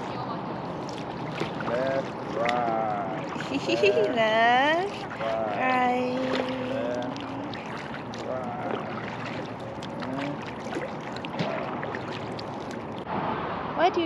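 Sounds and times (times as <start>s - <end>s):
steady rush of water: 0.0s - 14.0s
paddle stroking through water: 0.6s - 13.1s
water dripping off paddle: 0.8s - 3.6s, 4.8s - 13.1s.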